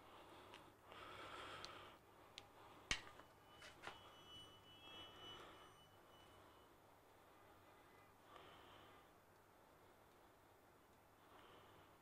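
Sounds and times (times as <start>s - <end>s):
faint high whine: 0.0s - 12.0s
faint clicks and taps: 0.4s - 0.7s.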